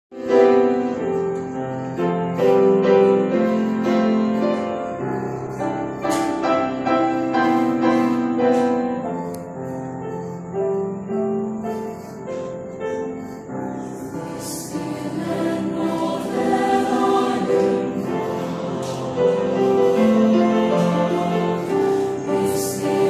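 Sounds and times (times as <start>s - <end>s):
piano playing slow chords: 0.1s - 23.0s.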